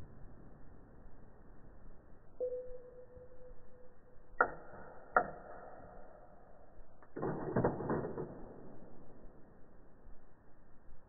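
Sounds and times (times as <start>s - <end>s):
short ringing tone: 2.4s - 4.4s.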